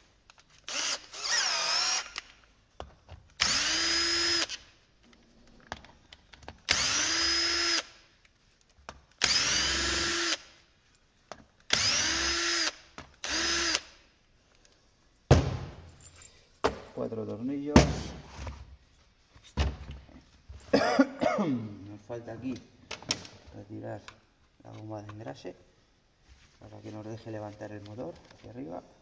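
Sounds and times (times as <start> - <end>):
cordless drill whining: 0.6 - 2.3, 3.4 - 4.6, 6.7 - 8.0, 9.2 - 10.5, 11.7 - 14.0.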